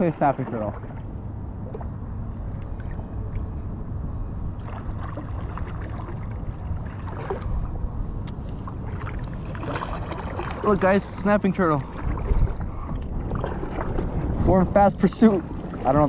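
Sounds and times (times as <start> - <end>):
steady low rumble: 0.0 - 16.0
paddle splashing water: 4.6 - 16.0.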